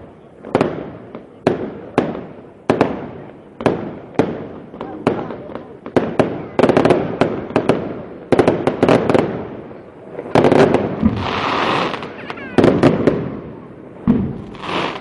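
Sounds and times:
crackling hiss: 0.0 - 15.0
firework shells bursting: 14.0 - 15.0.

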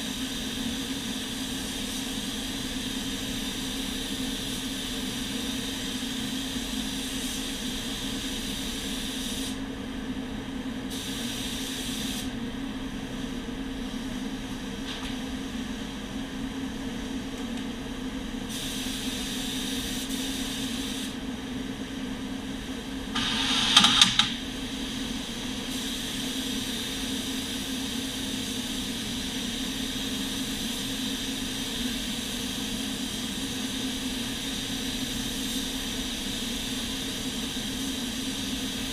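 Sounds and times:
ventilation hum: 0.0 - 38.9
paint spray gun hissing: 10.9 - 12.3, 18.5 - 21.2, 23.2 - 24.9, 25.7 - 38.9.

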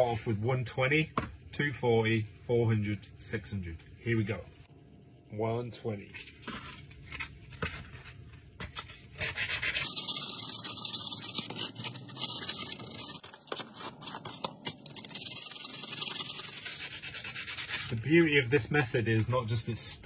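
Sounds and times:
hand sanding strokes: 9.2 - 18.3.

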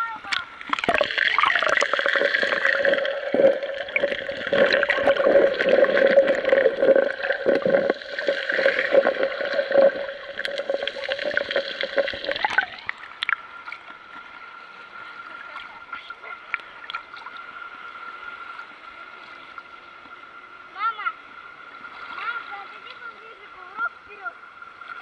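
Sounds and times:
open-air sea ambience: 0.0 - 25.0
steady underwater hum: 0.0 - 25.0
muffled underwater gurgling and rushing: 0.6 - 13.4.

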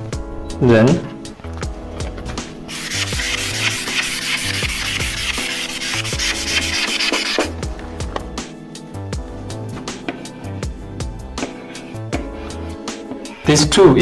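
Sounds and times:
background music: 0.0 - 14.0
eraser rubbing on chalkboard: 2.7 - 7.5, 11.4 - 13.6.

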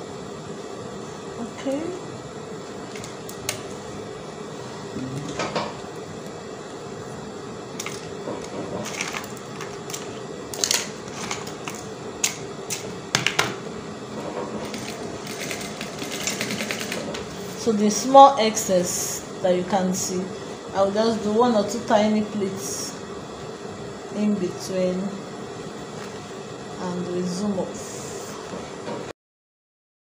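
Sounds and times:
sewing machine motor hum: 14.6 - 17.6.

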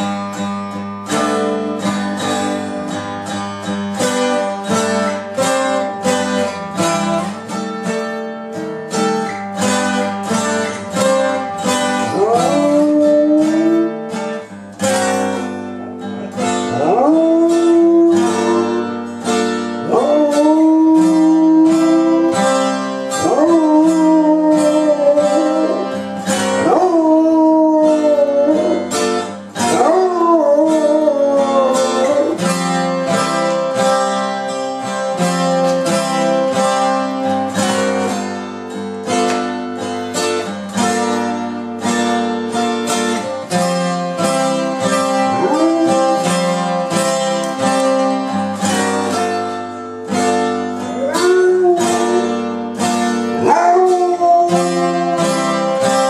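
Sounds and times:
plucked acoustic guitar: 0.0 - 56.0
dog howling: 12.0 - 14.0, 16.2 - 18.9, 19.8 - 32.6, 45.2 - 46.6, 50.8 - 52.4, 53.4 - 56.0.

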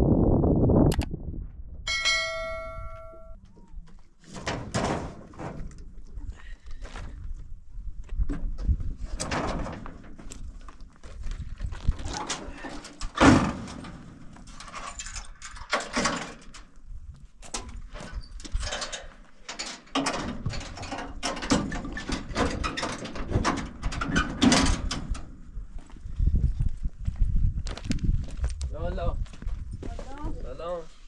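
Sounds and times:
footsteps on gravel: 29.2 - 30.6.

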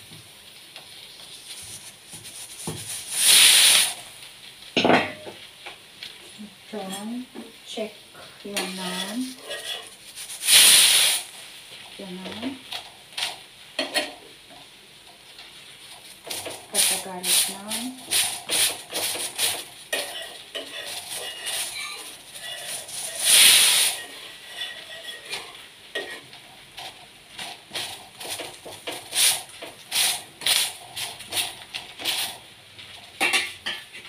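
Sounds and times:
bread sizzling: 0.0 - 34.0
metal spatula scraping on griddle: 0.9 - 4.1, 8.6 - 11.4, 16.2 - 32.4.

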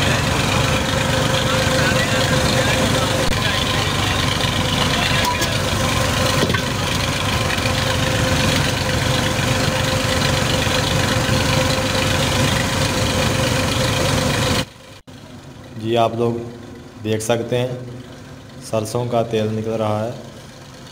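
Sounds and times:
oil press machine droning: 0.0 - 15.4.

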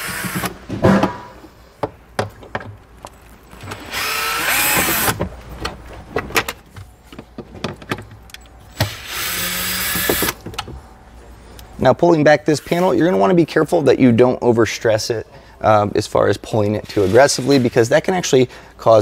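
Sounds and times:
power driver motor running: 3.9 - 5.2.

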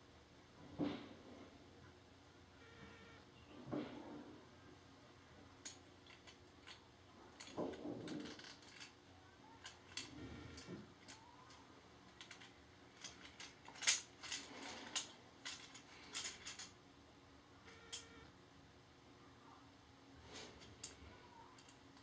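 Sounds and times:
plastic toy clicking and rattling: 5.6 - 6.8, 7.4 - 9.0, 9.6 - 16.8, 21.6 - 22.0.

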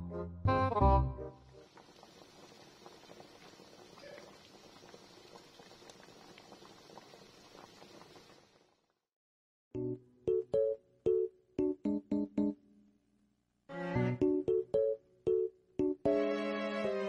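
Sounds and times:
water boiling with small pops: 1.6 - 9.0.

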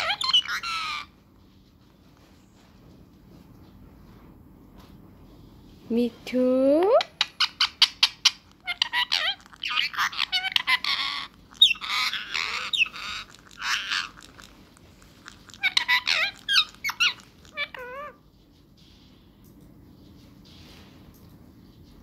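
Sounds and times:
parrot squeaking and squawking: 0.0 - 1.2, 7.0 - 18.2.

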